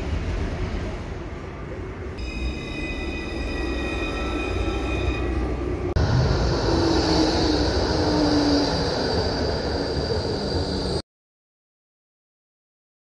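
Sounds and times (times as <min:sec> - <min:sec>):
train running: 0:00.0 - 0:11.0
high whining tones: 0:02.2 - 0:11.0
low rumble: 0:05.8 - 0:11.0
rushing noise with high hum: 0:05.8 - 0:11.0.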